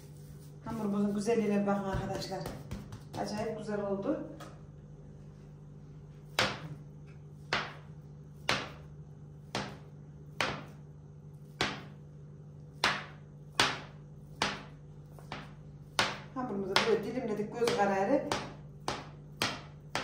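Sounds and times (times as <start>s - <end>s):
dough scraper knocking on table: 1.8s - 3.6s, 6.3s - 6.8s, 7.5s - 8.8s, 9.4s - 10.8s, 11.5s - 12.0s, 12.8s - 17.0s, 17.6s - 20.0s.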